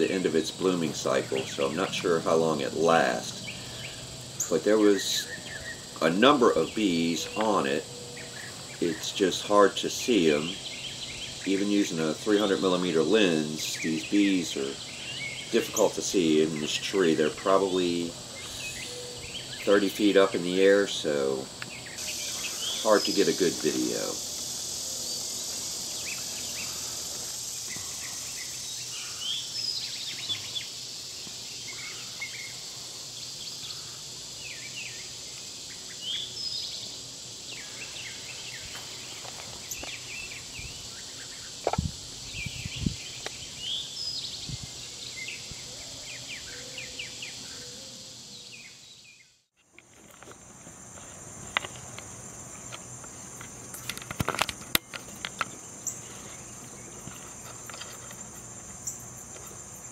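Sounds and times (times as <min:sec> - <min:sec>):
insects droning: 0:00.0 - 0:59.9
bird chirps: 0:21.7 - 0:24.1.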